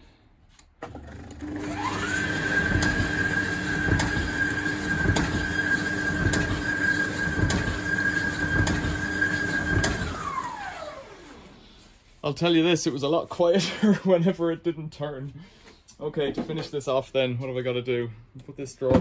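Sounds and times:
tumble dryer motor whine: 0.9s - 11.6s.

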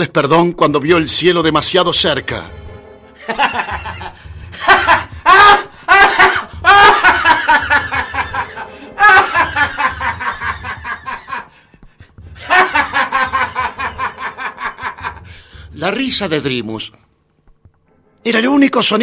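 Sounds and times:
villain's cackling laugh: 3.2s - 11.5s, 12.4s - 15.3s.

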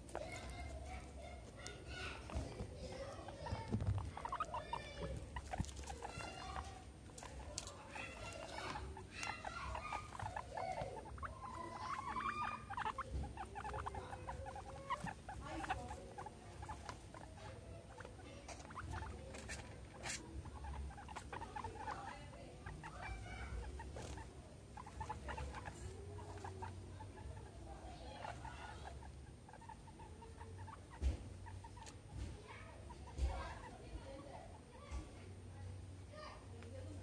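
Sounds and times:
pattering and rustling on turf: 0.0s - 27.4s
guinea pigs squeaking: 0.0s - 35.0s.

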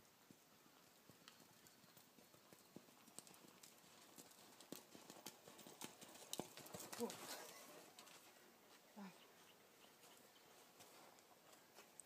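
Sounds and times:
horse hoofbeats on sand: 0.3s - 8.8s.

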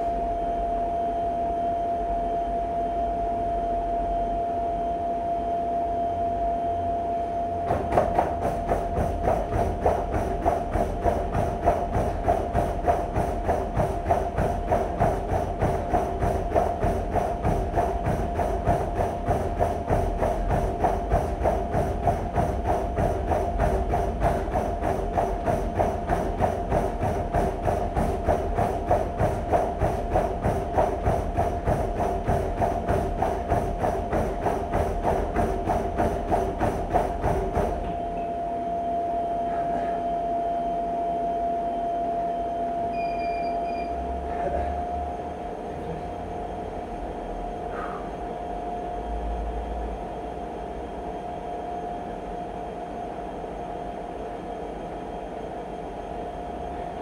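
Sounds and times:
treadmill motor whine: 0.0s - 57.0s
footfalls on treadmill belt: 7.6s - 38.4s.

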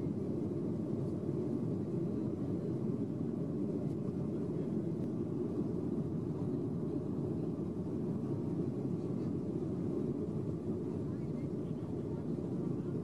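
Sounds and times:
jet engine rumble in cabin: 0.0s - 13.0s.

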